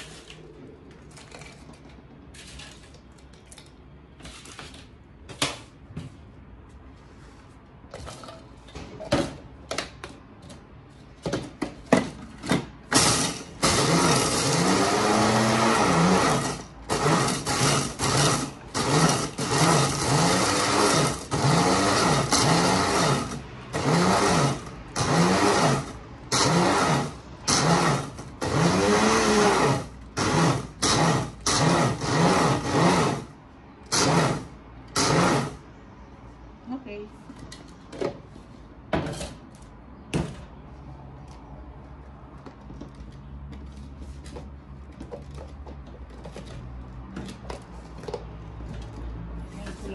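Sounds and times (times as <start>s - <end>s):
electric chopper grinding bread: 12.9s - 35.6s.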